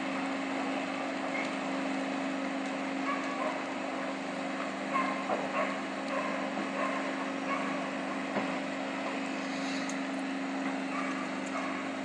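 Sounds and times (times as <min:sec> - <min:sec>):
vehicle engines droning: 0:00.0 - 0:12.0.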